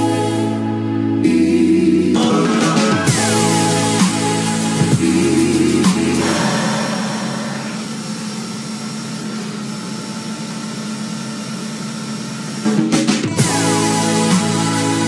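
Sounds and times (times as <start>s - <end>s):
music: 0.0s - 7.8s, 12.6s - 15.0s.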